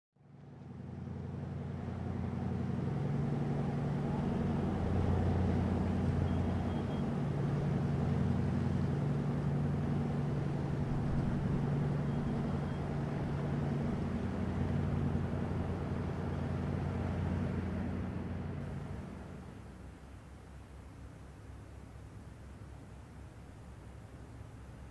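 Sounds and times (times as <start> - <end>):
boat engine droning: 0.2 - 24.9.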